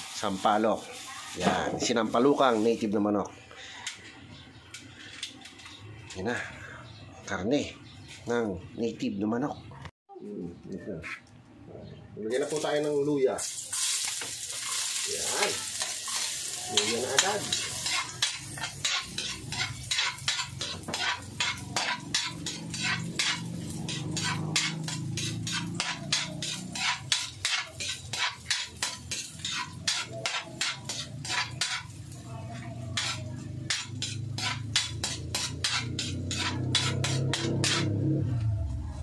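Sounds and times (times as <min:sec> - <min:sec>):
food sauteing in oil: 0:00.0 - 0:02.9, 0:13.4 - 0:38.0
metal spatula scraping a wok: 0:13.4 - 0:38.1.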